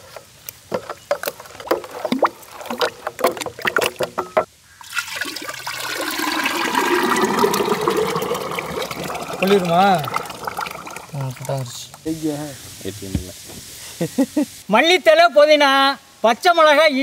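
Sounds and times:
thick liquid pouring into jar: 4.8s - 11.8s.

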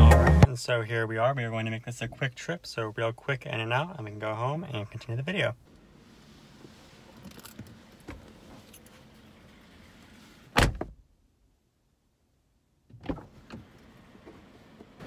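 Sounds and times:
car door shutting: 10.5s - 11.0s, 12.9s - 15.0s.

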